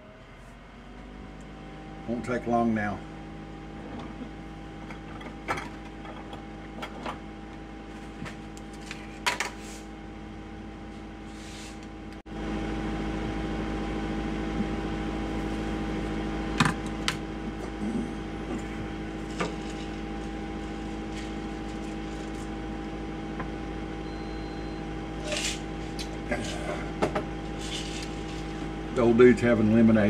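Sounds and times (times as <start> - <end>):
air fryer fan hum: 0.0 - 30.0.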